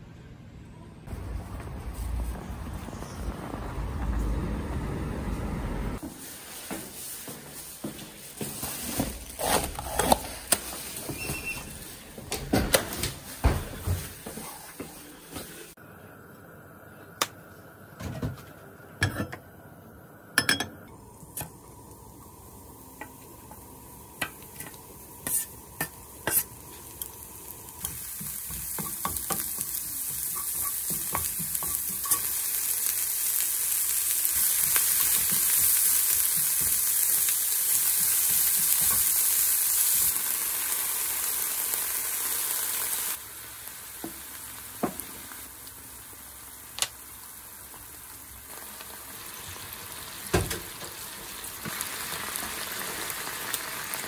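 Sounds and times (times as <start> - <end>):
vegetables sizzling in oil: 6.0 - 12.2, 20.9 - 54.0.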